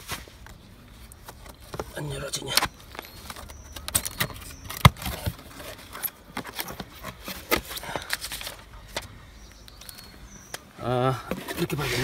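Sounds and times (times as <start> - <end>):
battery knocking and clunking: 1.2 - 8.2.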